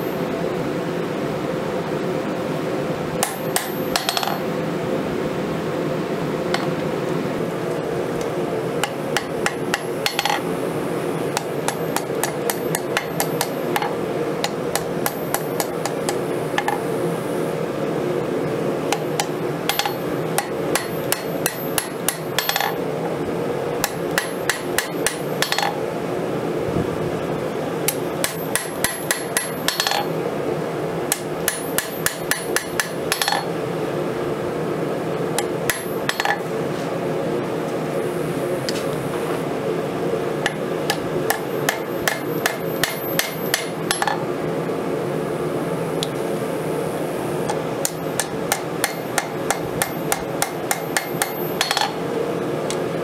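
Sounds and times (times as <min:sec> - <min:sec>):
steady hum: 0:00.0 - 0:53.0
hammer striking anvil: 0:03.2 - 0:04.5, 0:08.8 - 0:10.4, 0:11.4 - 0:13.9, 0:14.5 - 0:16.8, 0:19.0 - 0:22.8, 0:23.8 - 0:25.8, 0:27.9 - 0:30.1, 0:31.1 - 0:33.5, 0:35.7 - 0:36.4, 0:40.5 - 0:44.2, 0:47.8 - 0:52.0
anvil ringing: 0:19.7 - 0:22.8, 0:28.2 - 0:30.1, 0:31.5 - 0:33.5.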